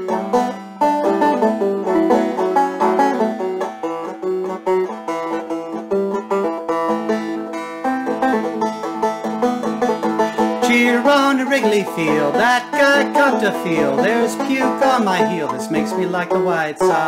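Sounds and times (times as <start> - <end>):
banjo playing: 0.0 - 17.0.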